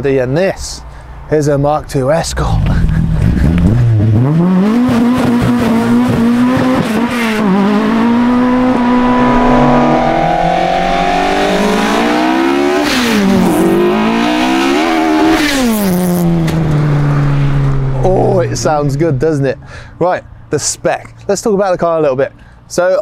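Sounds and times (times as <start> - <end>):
car engine accelerating: 2.2 - 19.7.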